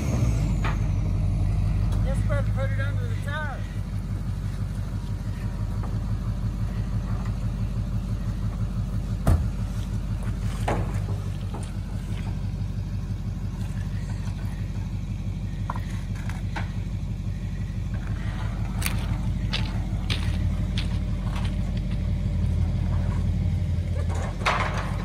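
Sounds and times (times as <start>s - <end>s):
pickup truck engine idling: 0.0s - 25.0s.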